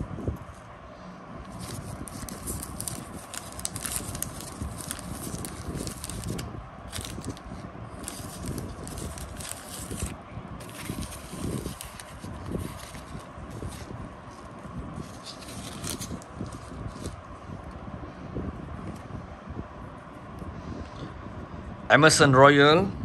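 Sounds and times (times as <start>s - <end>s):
paper packet crackling and rustling: 1.4s - 17.4s.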